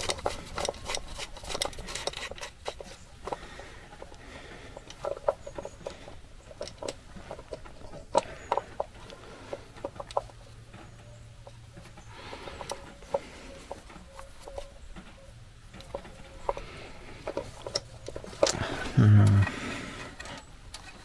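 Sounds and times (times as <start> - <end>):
small clicks and knocks: 0.0 - 21.0.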